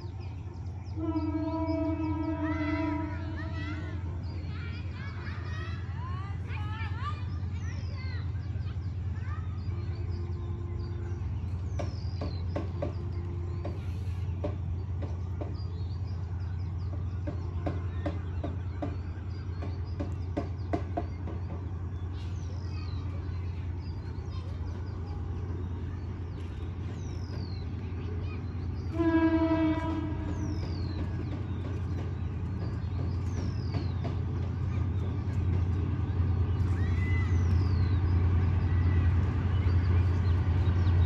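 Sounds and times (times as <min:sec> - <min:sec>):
train rumble: 0:00.0 - 0:41.0
train horn: 0:00.9 - 0:04.0, 0:10.0 - 0:11.4, 0:28.9 - 0:30.6.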